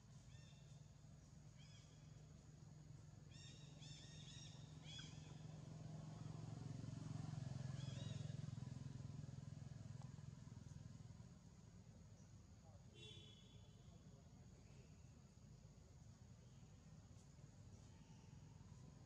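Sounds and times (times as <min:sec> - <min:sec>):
distant motor vehicle hum: 0:00.0 - 0:15.0.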